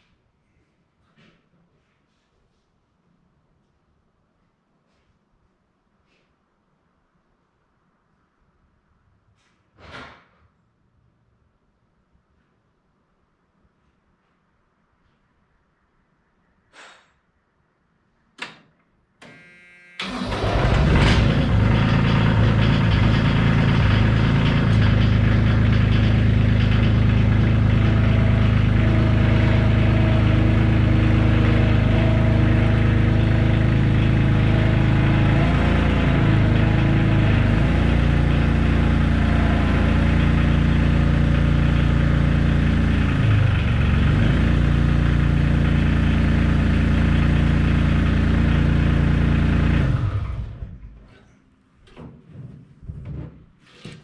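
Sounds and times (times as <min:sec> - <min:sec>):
skid steer engine running: 0:19.3 - 0:51.1.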